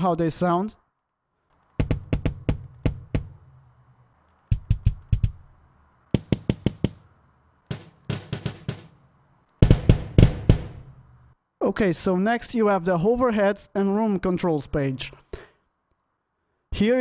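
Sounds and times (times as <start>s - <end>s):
kick drum hits: 9.6s - 10.9s.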